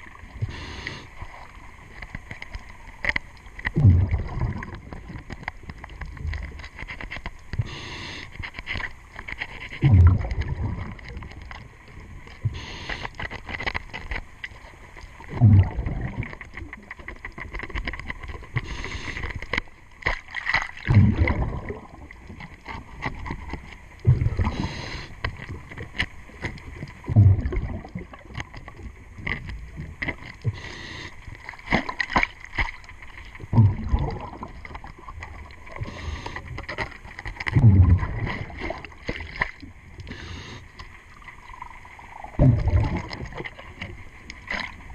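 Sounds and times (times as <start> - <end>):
underwater exhaust bubbles gushing: 3.4 - 6.6, 9.8 - 13.0, 15.1 - 17.8, 20.8 - 31.5, 33.4 - 40.6, 41.4 - 44.9
regulator hiss: 7.6 - 8.4.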